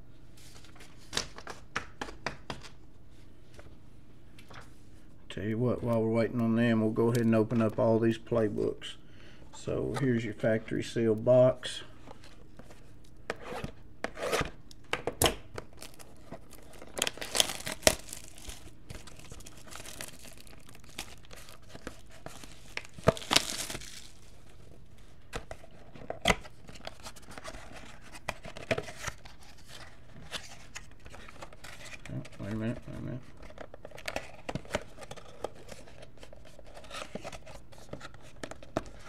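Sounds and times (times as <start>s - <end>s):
plastic shrink-wrap tearing: 15.7s - 24.4s.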